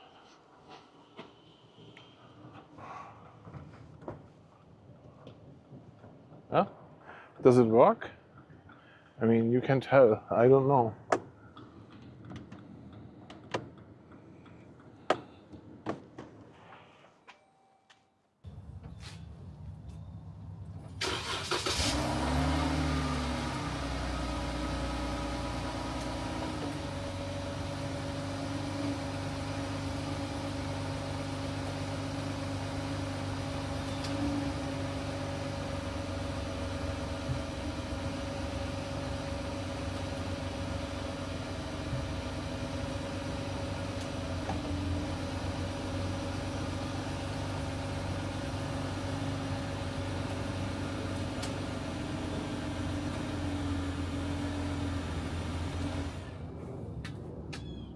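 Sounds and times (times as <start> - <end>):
car engine idling: 18.5 - 56.5.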